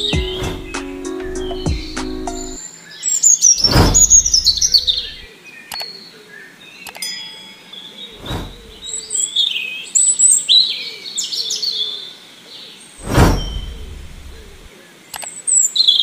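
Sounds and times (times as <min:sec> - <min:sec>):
whoosh sound effect: 0:00.0 - 0:00.8, 0:03.6 - 0:05.3, 0:08.2 - 0:08.9, 0:13.0 - 0:14.7
bird chirps and trills: 0:00.0 - 0:12.0, 0:13.0 - 0:16.0.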